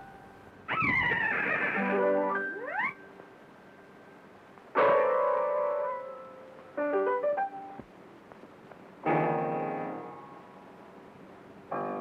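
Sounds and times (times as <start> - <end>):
piano notes and chord: 1.8 - 4.2, 4.8 - 7.8, 9.0 - 10.5, 11.7 - 12.0.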